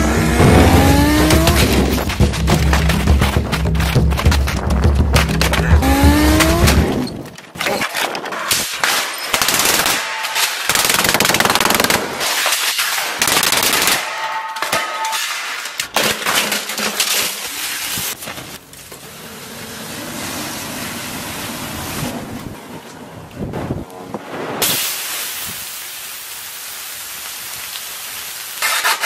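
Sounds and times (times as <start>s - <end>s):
printer being smashed: 14.6s - 17.5s
broken plastic clattering: 14.6s - 18.6s.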